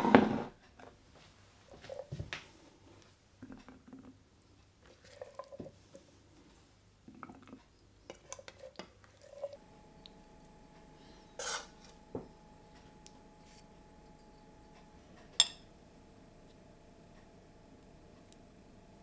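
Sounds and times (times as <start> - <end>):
spoon scraping ceramic plate: 11.4 - 12.0.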